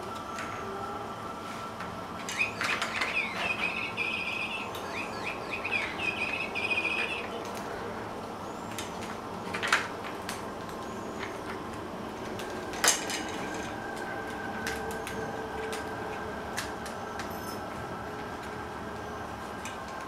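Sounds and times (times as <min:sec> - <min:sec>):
toys clicking and tapping on floor: 0:12.2 - 0:15.9.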